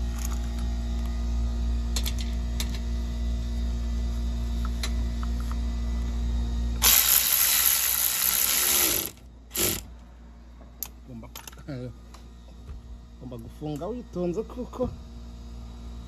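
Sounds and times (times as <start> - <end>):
steady low hum: 0.0 - 16.0
impact driver hissing: 6.8 - 9.9.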